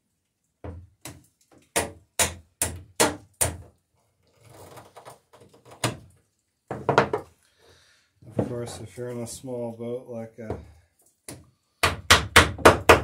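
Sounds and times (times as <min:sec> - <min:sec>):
sharp knocks on wooden planking: 0:11.3 - 0:13.0.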